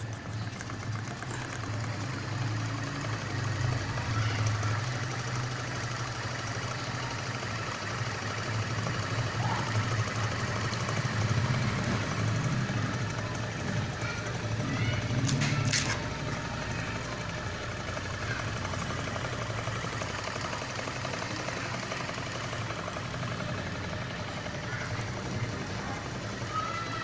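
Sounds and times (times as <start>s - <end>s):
engine clattering: 0.0s - 27.0s.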